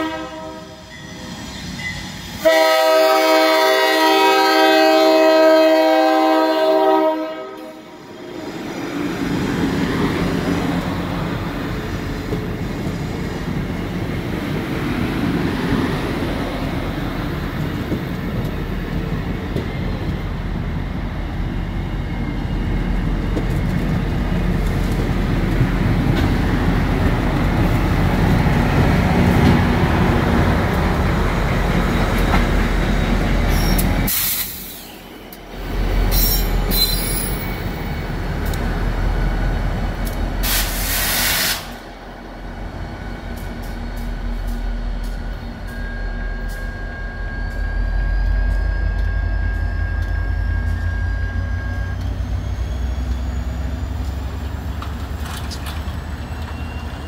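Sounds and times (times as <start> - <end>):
diesel locomotive engine hum: 0.0 - 57.0
train wheels rumbling and clattering: 8.4 - 57.0.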